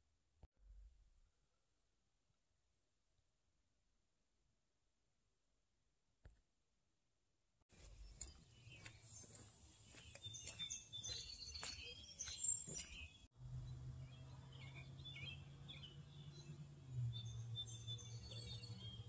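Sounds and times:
songbirds chirping: 7.7 - 19.0.

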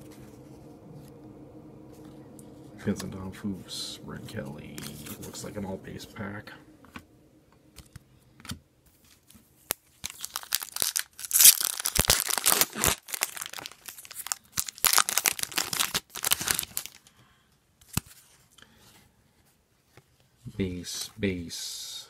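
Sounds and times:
cards rustling: 9.0 - 17.0
foil wrapper crinkling: 9.0 - 17.1.

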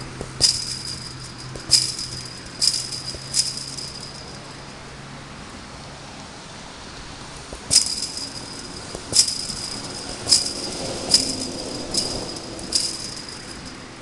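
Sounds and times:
ball hitting chain-link fence: 0.0 - 4.7, 7.5 - 14.0
fence mesh rattling: 0.0 - 4.7, 7.5 - 14.0.

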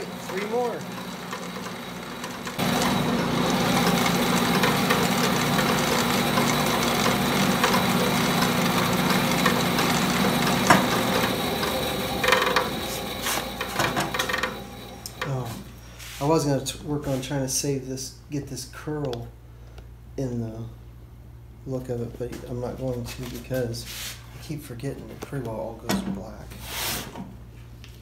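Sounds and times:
bandsaw cutting wood: 0.0 - 15.5.

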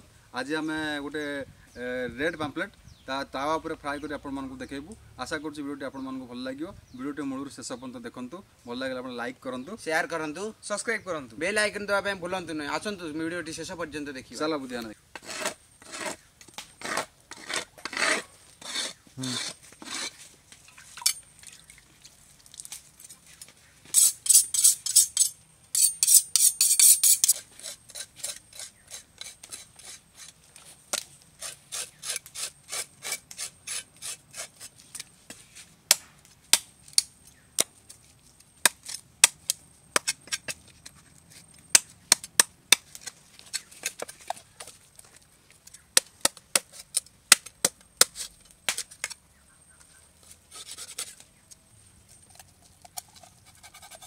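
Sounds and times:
knife rubbing on wooden block: 15.2 - 16.2, 16.8 - 20.2, 23.9 - 30.4, 50.2 - 51.2, 52.3 - 54.0
knife scraping fish scales: 15.2 - 16.2, 16.8 - 20.2, 23.9 - 30.4, 31.4 - 35.0, 50.2 - 51.2, 52.3 - 54.0.

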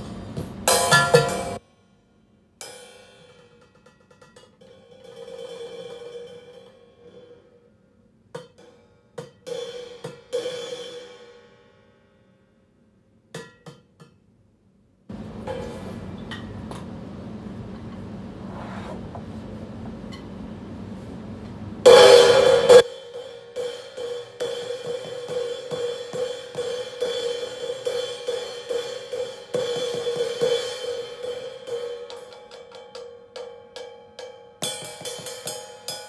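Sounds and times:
cymbal crash: 0.0 - 1.6, 21.9 - 32.3
cymbal struck with drumstick: 0.0 - 1.6, 21.9 - 36.0.

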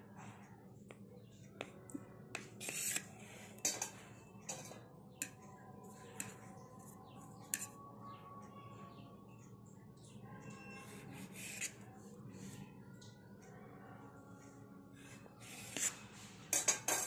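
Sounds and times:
knife clicking and scraping plate: 2.4 - 5.4, 16.5 - 17.0.

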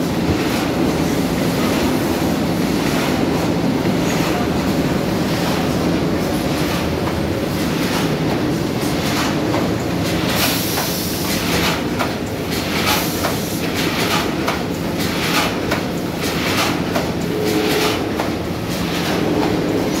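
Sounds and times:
machine mechanical din: 16.2 - 20.0.

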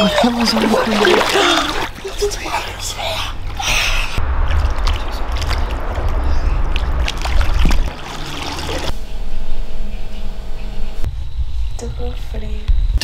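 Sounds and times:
sea water sloshing and splashing: 0.0 - 2.7, 6.8 - 8.9
low rumble on microphone: 3.0 - 13.0.

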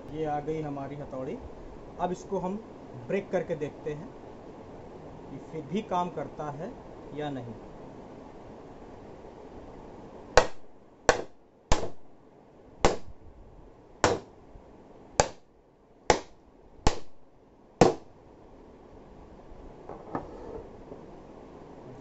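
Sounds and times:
hammer knocking on glass: 14.0 - 14.3, 17.8 - 18.0.

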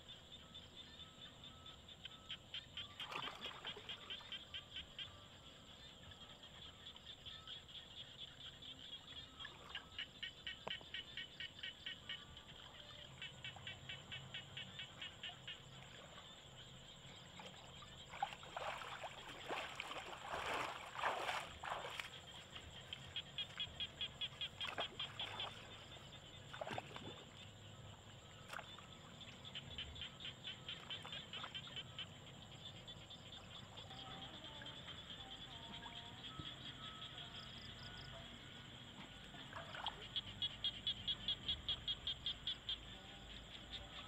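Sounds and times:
frogs calling in rapid pulses: 0.0 - 44.0
wading through shallow water: 17.2 - 29.2.

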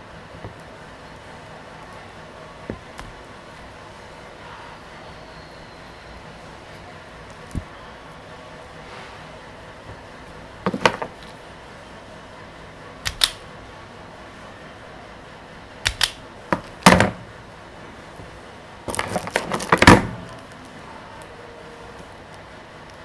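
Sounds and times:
wires being handled: 6.6 - 11.7, 18.0 - 23.0
wire stripper clicking: 13.0 - 13.4, 15.8 - 17.1.

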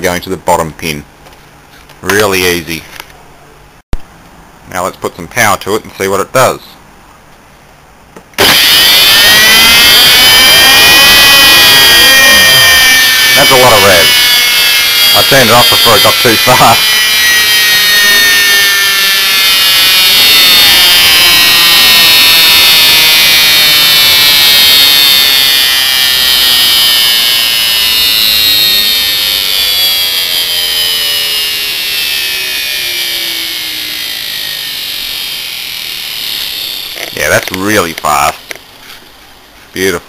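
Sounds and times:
electric motor whining: 8.4 - 37.7.

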